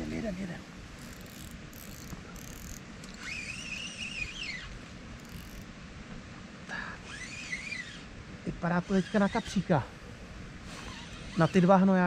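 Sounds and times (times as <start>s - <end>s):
fishing reel gear whine: 1.0s - 5.7s, 7.0s - 8.1s, 10.8s - 11.9s.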